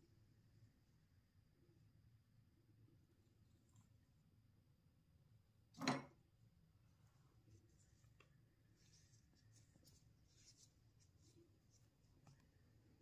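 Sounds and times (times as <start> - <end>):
faint scratchy rustles: 6.9 - 12.8.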